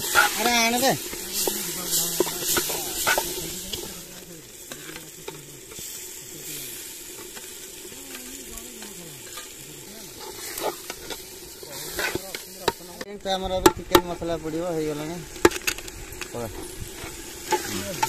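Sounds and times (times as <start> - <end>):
ladle scraping and clinking pot: 0.0 - 4.0
food sizzling in oil: 0.0 - 18.0.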